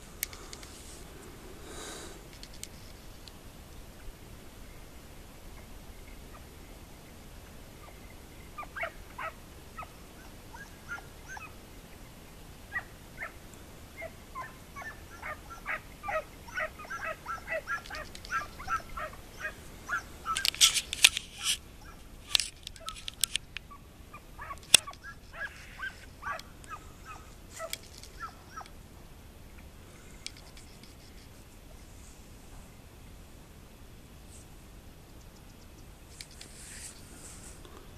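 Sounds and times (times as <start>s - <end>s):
hounds yelping: 7.8s - 11.6s, 12.7s - 20.8s, 21.4s - 22.1s, 22.7s - 23.1s, 23.7s - 28.8s.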